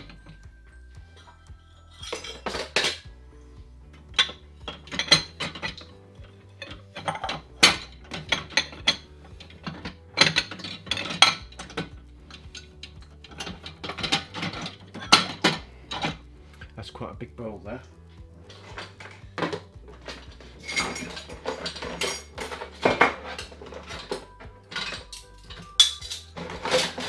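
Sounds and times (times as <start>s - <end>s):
dishes clattering in dishwasher rack: 2.1s - 3.1s, 4.2s - 6.0s, 6.6s - 16.2s, 18.5s - 27.0s.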